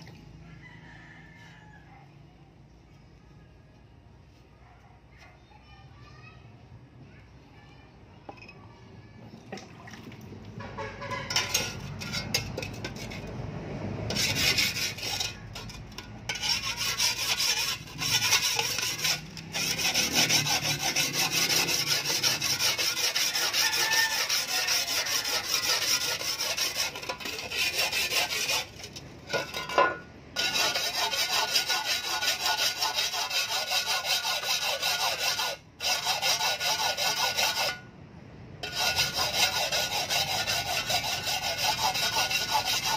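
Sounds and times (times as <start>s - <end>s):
tool scraping shovel blade: 10.8s - 13.4s, 14.1s - 37.9s, 38.6s - 42.9s.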